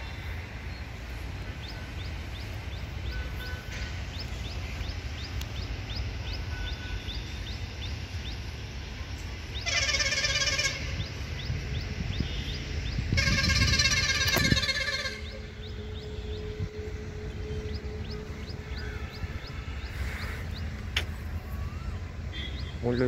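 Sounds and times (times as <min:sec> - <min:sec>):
steady low rumble: 0:00.0 - 0:22.4
distant locomotive air horn: 0:02.9 - 0:04.2, 0:06.2 - 0:07.4, 0:09.6 - 0:11.4, 0:12.2 - 0:20.6.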